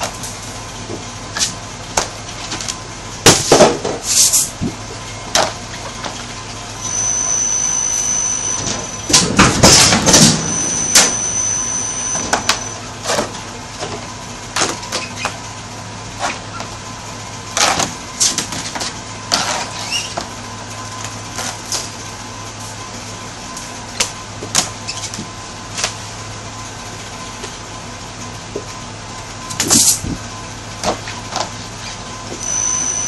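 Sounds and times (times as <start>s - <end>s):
thin high whine: 6.5s - 13.0s, 31.8s - 33.0s
press machine humming: 6.7s - 13.0s.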